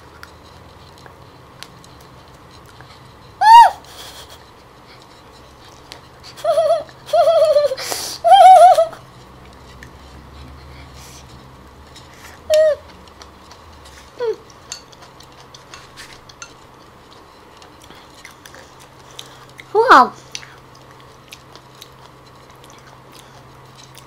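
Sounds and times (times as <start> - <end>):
chewing clicks: 0.1 - 3.1, 9.2 - 10.6, 11.2 - 24.0
woman squealing in disgust: 3.4 - 3.9
woman whimpering: 3.4 - 4.4, 6.4 - 9.0.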